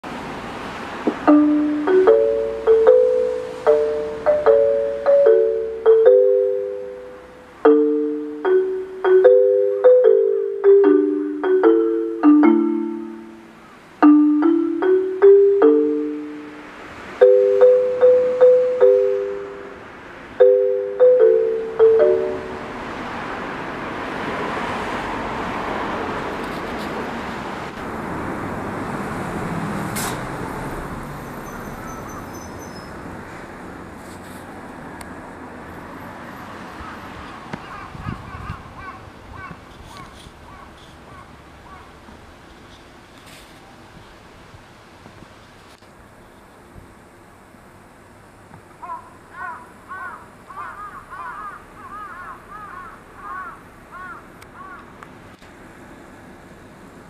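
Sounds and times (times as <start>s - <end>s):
distant road traffic hum: 0.0s - 57.0s
crows cawing: 36.7s - 42.0s, 48.8s - 54.9s.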